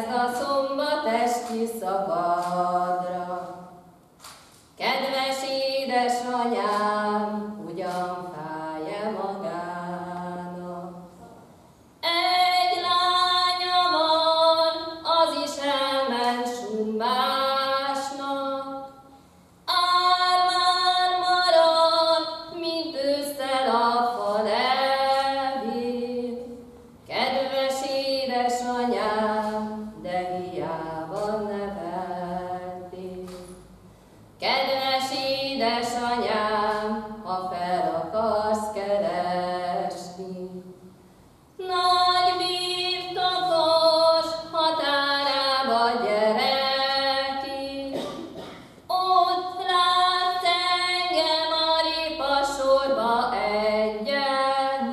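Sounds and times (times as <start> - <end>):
woman singing unaccompanied: 0.0 - 3.8, 4.8 - 11.2, 12.0 - 18.9, 19.6 - 33.6, 34.4 - 40.7, 41.6 - 48.0, 48.9 - 54.9.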